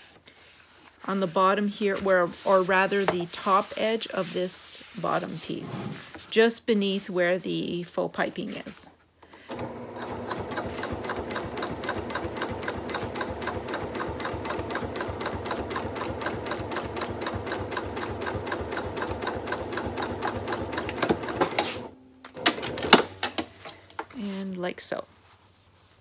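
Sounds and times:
electric sewing machine stitching: 0:09.4 - 0:23.0
sewing machine clicks: 0:09.5 - 0:21.6.

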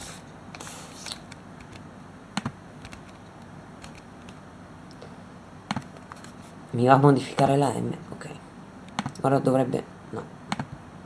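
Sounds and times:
keyboard and mouse clicks: 0:01.0 - 0:01.8, 0:02.4 - 0:04.4, 0:05.7 - 0:06.4, 0:07.3 - 0:07.5, 0:08.9 - 0:09.3, 0:10.5 - 0:10.8.

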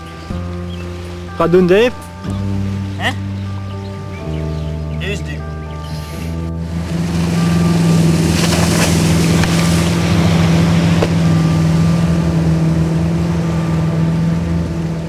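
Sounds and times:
boat engine humming: 0:00.0 - 0:15.0
water rushing: 0:00.0 - 0:15.0.

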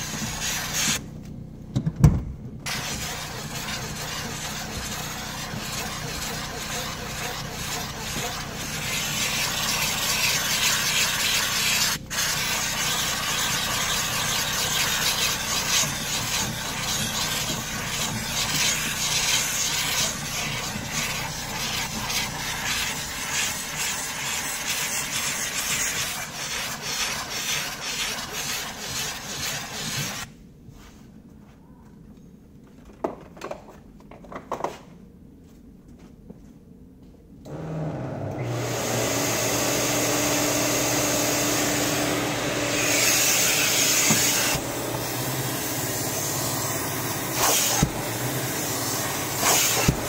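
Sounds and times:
steam cleaner hissing: 0:00.0 - 0:01.0, 0:02.7 - 0:30.3, 0:38.4 - 0:50.0.

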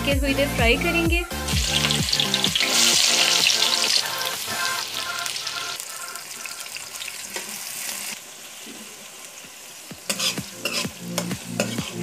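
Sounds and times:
onions sizzling in hot oil: 0:01.4 - 0:12.0
metal spoon scraping a pan: 0:10.1 - 0:12.0.

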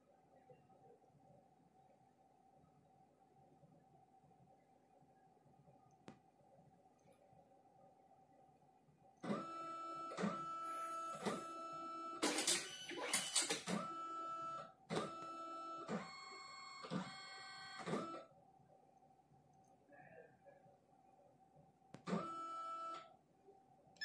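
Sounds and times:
printer motors whining: 0:09.2 - 0:18.2.

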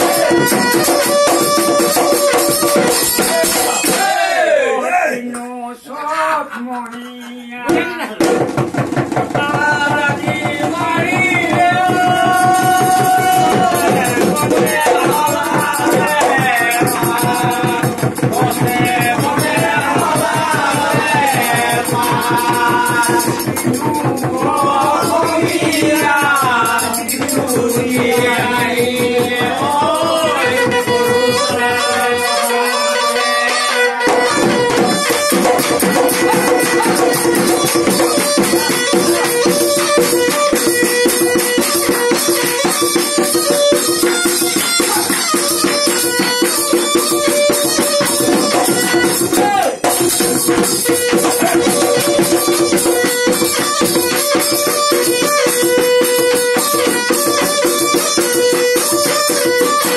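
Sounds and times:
horn pipe folk melody: 0:00.0 - 0:03.9, 0:30.2 - 0:49.6, 0:50.4 - 0:59.9
hand-beaten drum rhythm: 0:00.0 - 0:04.5, 0:06.9 - 0:59.9.

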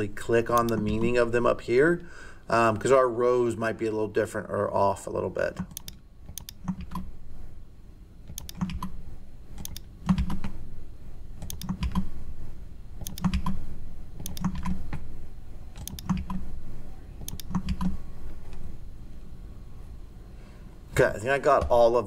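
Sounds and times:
computer keyboard typing: 0:05.6 - 0:07.1, 0:08.3 - 0:09.0, 0:09.6 - 0:10.6, 0:11.4 - 0:12.1, 0:13.0 - 0:13.6, 0:14.2 - 0:15.1, 0:15.7 - 0:16.5, 0:17.2 - 0:18.6.

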